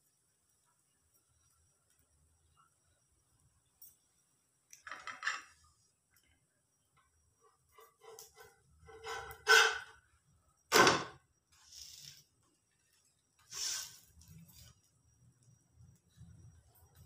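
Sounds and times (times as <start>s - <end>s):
spatula scraping frying pan: 7.5s - 10.0s.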